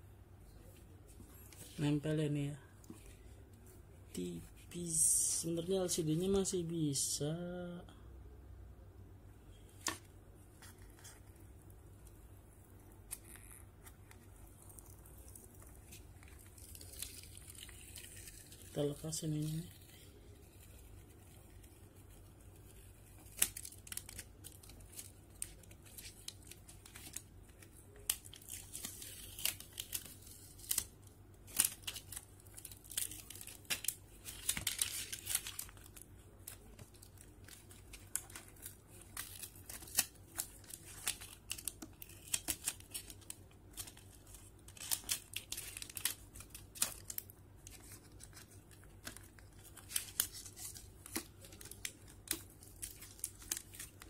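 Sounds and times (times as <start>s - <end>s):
plastic film crackling: 9.5s - 54.0s.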